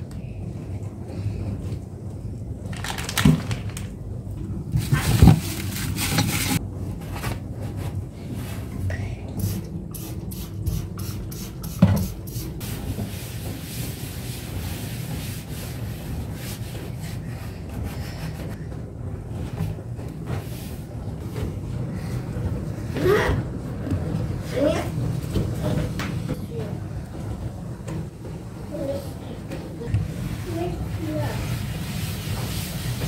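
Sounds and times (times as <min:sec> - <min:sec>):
towel rubbing drawer: 0:04.8 - 0:06.6.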